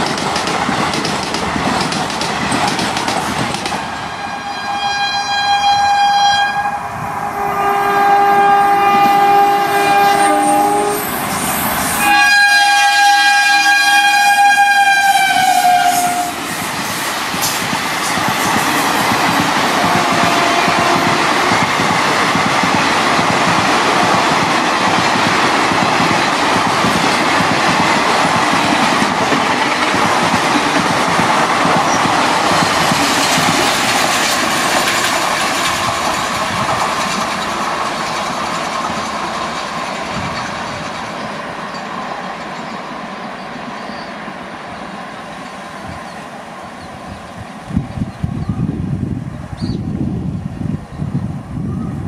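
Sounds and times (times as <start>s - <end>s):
wheels clattering on rails: 0.0s - 3.9s, 16.7s - 42.8s
train rushing past: 0.0s - 52.0s.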